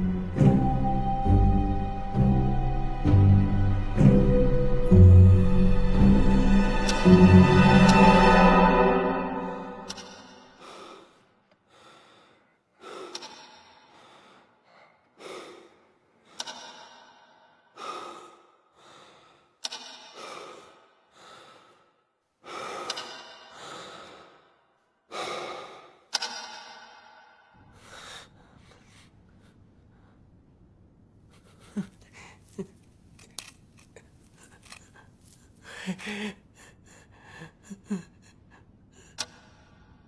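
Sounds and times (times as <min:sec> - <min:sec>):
man breathing hard: 0:10.5 - 0:26.1, 0:27.4 - 0:30.3, 0:34.4 - 0:40.0.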